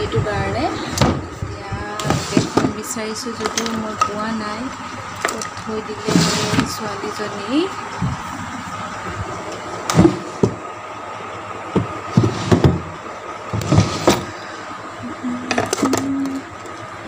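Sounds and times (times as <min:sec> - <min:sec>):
objects knocking and bumping: 0:00.9 - 0:04.3, 0:09.8 - 0:10.7, 0:11.7 - 0:14.4.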